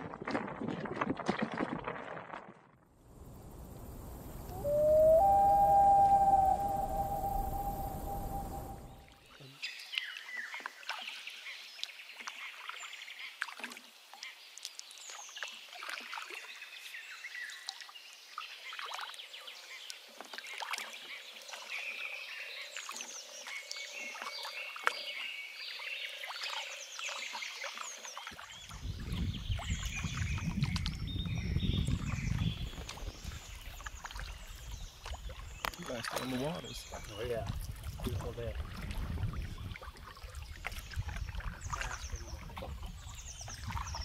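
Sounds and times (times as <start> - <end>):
low rumbling noise: 3.1 - 9.1
frogs calling: 3.2 - 9.1
birds chirping and whistling: 4.4 - 9.1.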